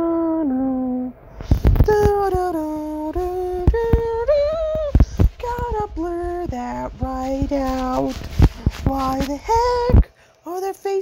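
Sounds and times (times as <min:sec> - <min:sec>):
person humming a tune: 0:00.0 - 0:10.1
sharp knocks: 0:01.4 - 0:10.0.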